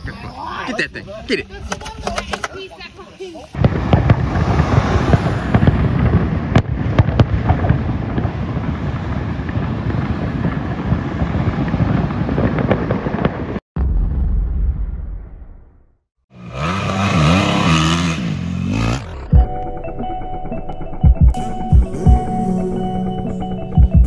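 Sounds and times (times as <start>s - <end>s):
fireworks crackling and banging: 1.6s - 14.0s
low rumble: 9.6s - 16.0s.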